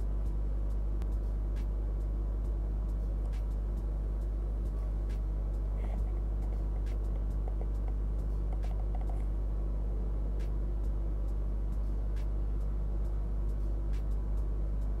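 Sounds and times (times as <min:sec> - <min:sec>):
low hum and buzz: 0:00.0 - 0:15.0.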